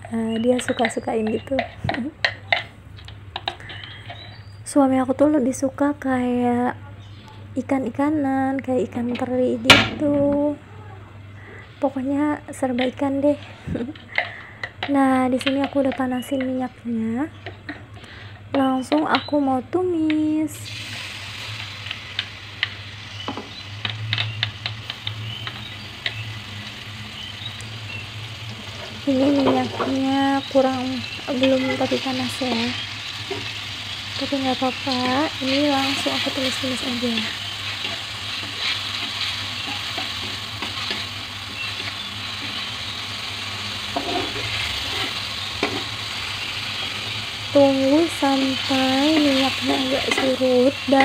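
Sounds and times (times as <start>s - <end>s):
faint oil sizzle: 20.4s - 51.0s
metal spatula scraping wok: 28.6s - 43.2s, 43.8s - 46.1s, 48.0s - 51.0s.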